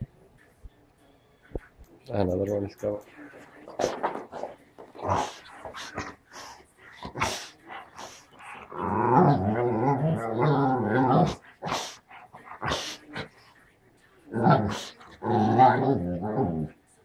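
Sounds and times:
dog groaning: 3.8 - 6.3, 6.9 - 13.3, 14.3 - 16.8.

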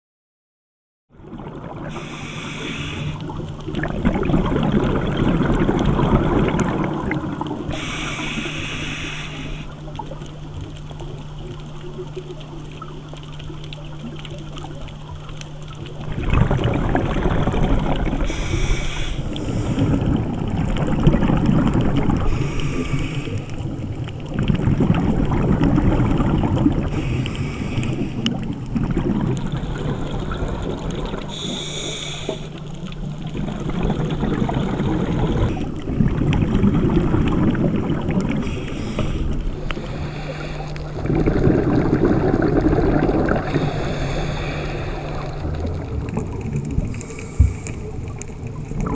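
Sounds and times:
exhaust bubbles rumbling: 1.1 - 48.9
regulator inhale hiss: 1.9 - 3.4, 7.7 - 10.0, 18.2 - 20.2, 22.2 - 23.8, 26.9 - 28.5, 31.2 - 32.8, 38.4 - 41.0, 43.3 - 45.6, 46.8 - 48.2.

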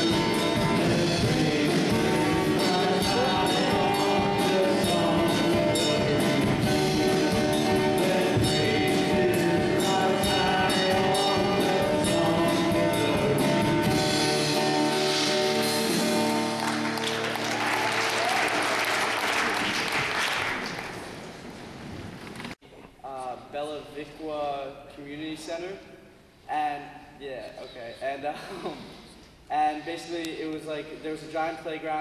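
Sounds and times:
man singing: 0.0 - 14.1
drum kit: 0.0 - 17.1
congregation applauding: 14.7 - 22.5.

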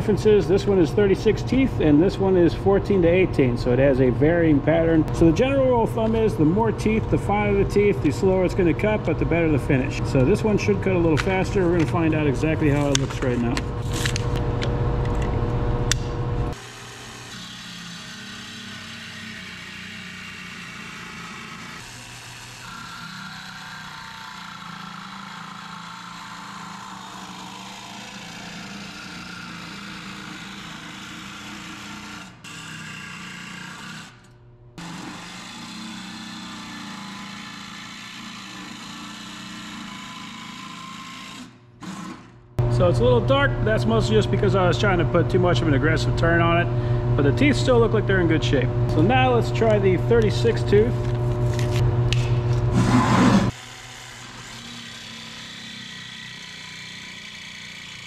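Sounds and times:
jigsaw cutting sheet steel: 16.5 - 42.4, 52.7 - 58.0.

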